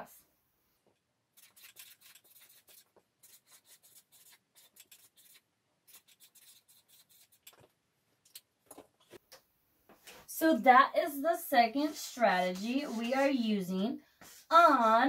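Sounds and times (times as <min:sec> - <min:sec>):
marker writing on paper: 0:01.4 - 0:07.5, 0:11.6 - 0:13.6, 0:14.2 - 0:15.0.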